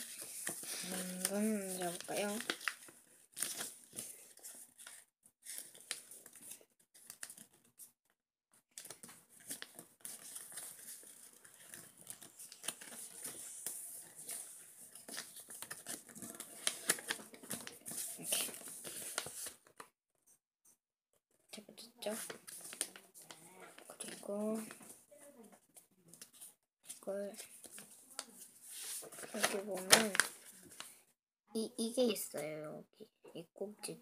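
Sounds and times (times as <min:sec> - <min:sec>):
paper rustling and crinkling: 0:00.0 - 0:07.9, 0:08.8 - 0:19.7, 0:22.0 - 0:25.5, 0:26.2 - 0:31.0.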